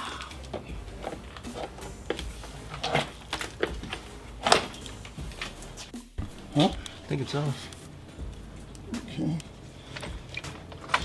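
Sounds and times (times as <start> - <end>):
plastic parts knocking and rattling: 0.4 - 5.6, 9.9 - 11.0.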